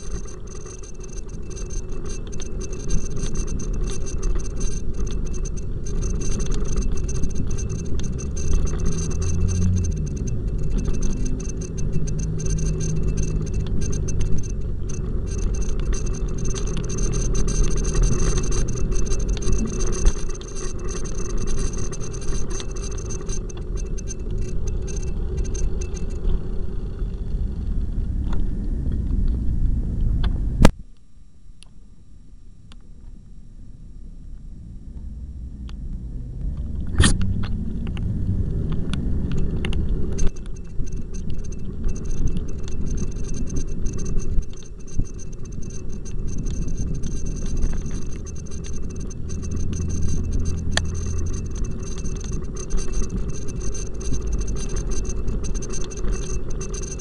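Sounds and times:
bicycle road rumble: 0:00.0 - 0:30.7, 0:34.1 - 0:57.0
wind: 0:00.0 - 0:31.8, 0:32.7 - 0:57.0.

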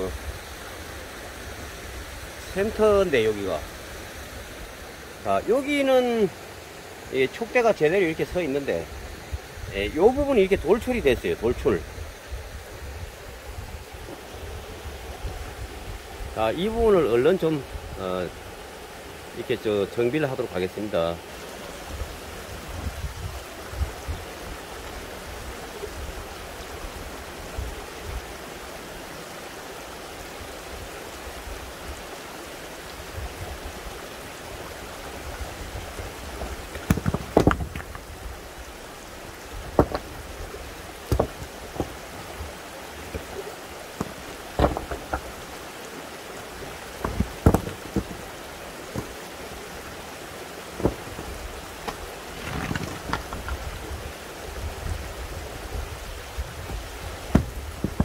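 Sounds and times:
running water rushing: 0:00.0 - 0:58.0
sharp knocks: 0:36.7 - 0:38.0, 0:39.8 - 0:40.2, 0:41.1 - 0:42.0, 0:44.0 - 0:45.3, 0:47.0 - 0:48.2, 0:57.3 - 0:58.0.

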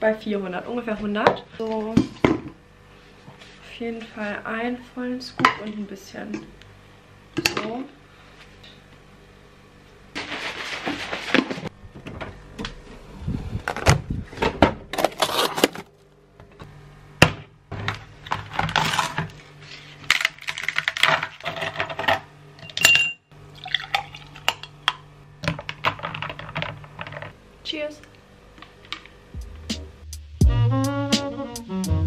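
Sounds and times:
drink pouring over ice: 0:23.6 - 0:24.6.

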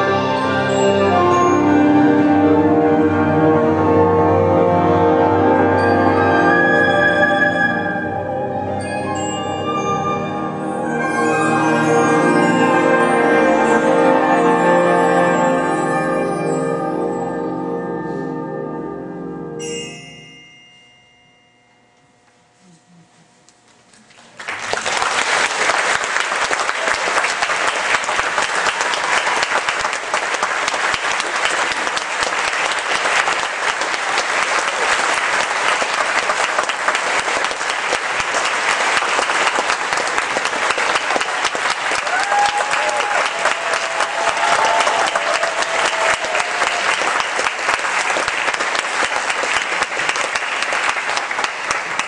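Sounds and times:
bells ringing: 0:00.0 - 0:02.9, 0:05.6 - 0:22.6
audience applause: 0:24.2 - 0:52.0.

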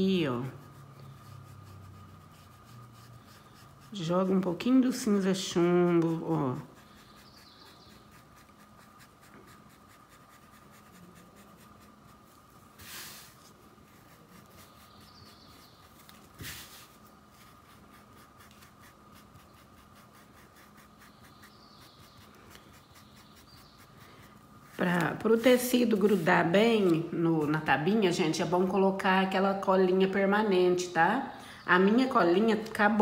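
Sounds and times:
brush scrubbing cloth: 0:00.0 - 0:21.6.

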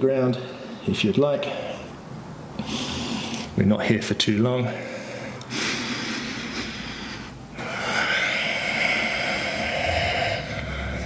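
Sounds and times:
man breathing hard: 0:02.6 - 0:03.6, 0:04.6 - 0:11.0.

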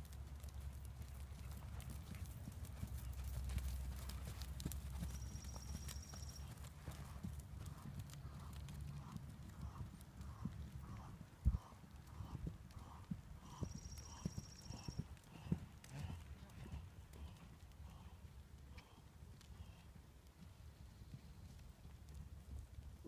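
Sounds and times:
hoofbeats on sand: 0:01.0 - 0:18.1.

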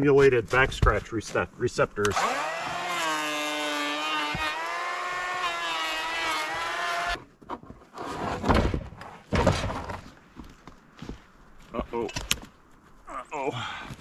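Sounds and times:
chainsaw running at high revs: 0:02.1 - 0:07.1.

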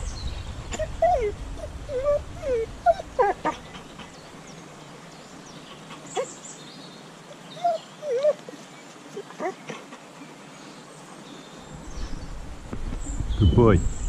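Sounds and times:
dog whimpering: 0:00.6 - 0:04.6, 0:05.7 - 0:06.4, 0:07.4 - 0:10.0.

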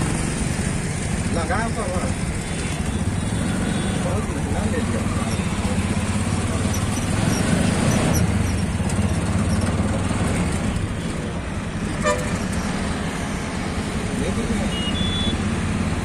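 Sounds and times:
vehicle engine and road rumble: 0:00.0 - 0:16.0
car horn toot: 0:12.0 - 0:12.5, 0:14.7 - 0:15.4.

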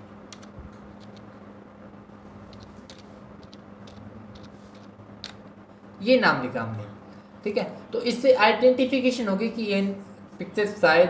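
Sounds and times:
steady low hum: 0:00.0 - 0:11.0
keyboard keys clicking: 0:00.3 - 0:01.3, 0:02.5 - 0:05.4.

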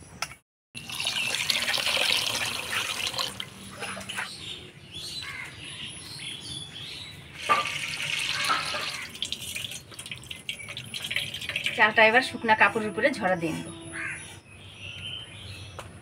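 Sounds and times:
water splashing as rice is washed: 0:00.9 - 0:03.5, 0:07.4 - 0:11.8.

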